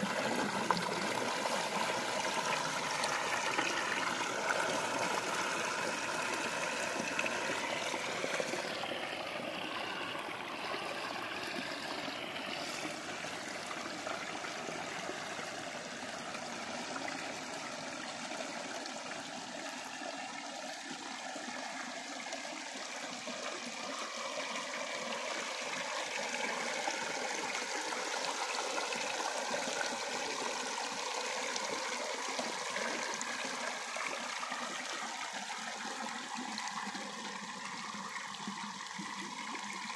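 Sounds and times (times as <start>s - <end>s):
stream water pouring over rocks: 0.0s - 39.9s.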